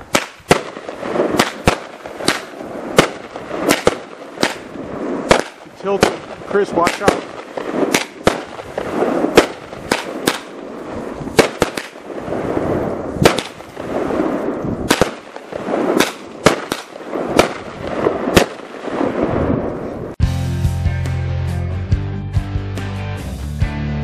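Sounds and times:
firework bangs: 0.0 - 20.2
firework hissing rush: 0.8 - 19.7
music: 20.2 - 24.0.

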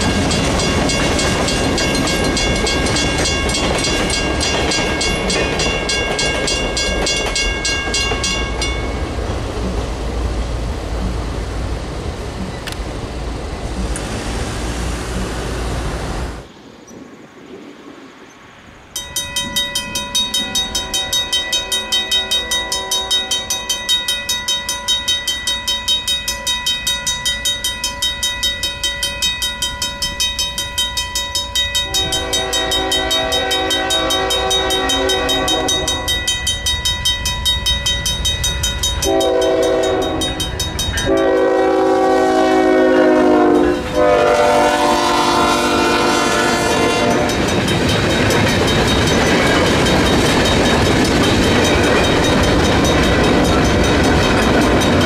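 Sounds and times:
railroad crossing bell ringing: 0.0 - 10.1, 18.9 - 55.0
passing road traffic: 8.2 - 22.7
locomotive horn blasts: 22.1 - 23.4, 31.8 - 36.2, 39.0 - 47.5.

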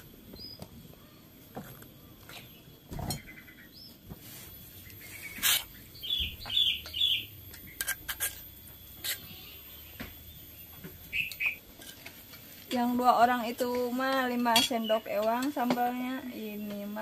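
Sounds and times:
bird chirping: 4.8 - 7.8, 9.0 - 11.6
metal spoon scraping stone mortar: 5.3 - 5.7, 7.8 - 9.4.

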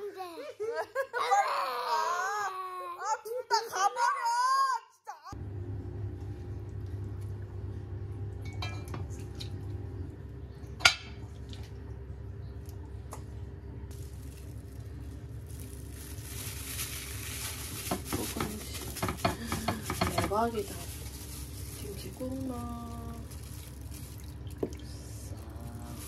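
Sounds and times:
steady low hum: 5.4 - 26.0
dishes clinking: 8.4 - 9.2.

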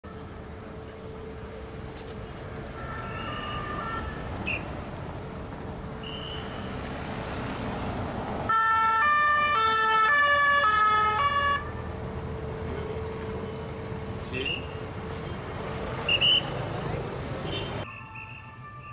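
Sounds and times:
traffic passing: 0.0 - 18.9
loud police two-tone siren: 2.7 - 4.6, 8.5 - 11.8, 17.8 - 18.9
distant two-tone siren: 2.7 - 4.8, 8.5 - 13.0, 17.8 - 18.9.

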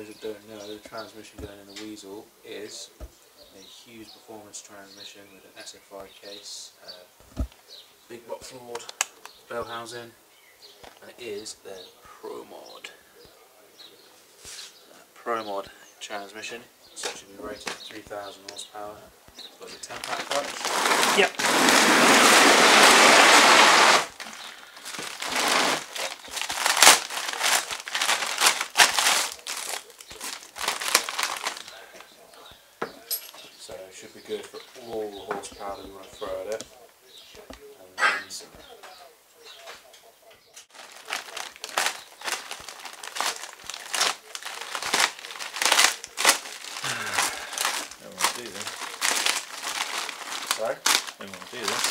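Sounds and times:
plastic wrapping rustling: 17.0 - 18.9, 19.6 - 32.2, 40.6 - 51.9.

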